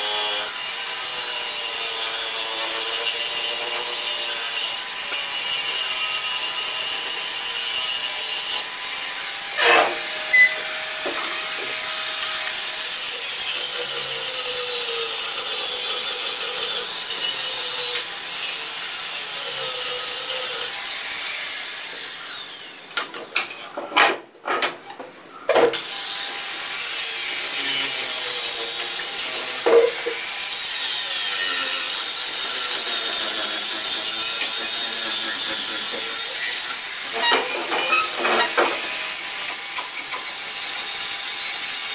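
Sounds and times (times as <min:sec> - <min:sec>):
abrasive rubbing on wood: 0:09.6 - 0:10.7.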